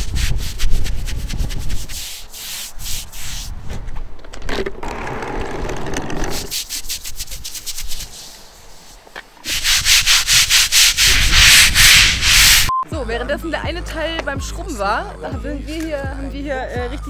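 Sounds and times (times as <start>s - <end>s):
brush scrubbing concrete wall: 0.0s - 3.6s, 6.3s - 12.7s.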